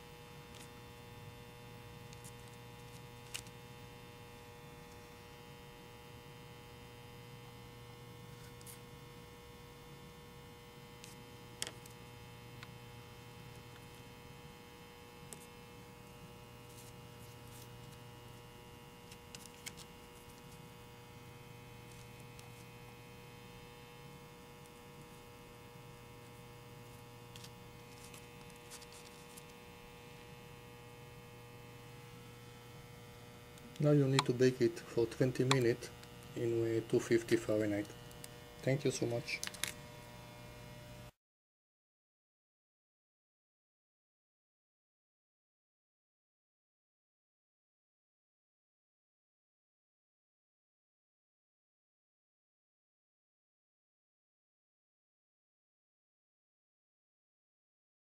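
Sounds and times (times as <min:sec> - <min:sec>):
electrical mains hum: 0:00.0 - 0:41.2.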